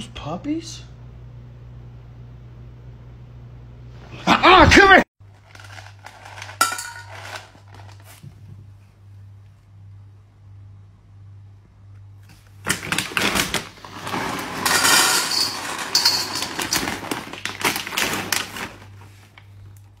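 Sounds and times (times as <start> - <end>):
kibble poured into metal bowl: 5.4 - 8.2, 13.8 - 18.8.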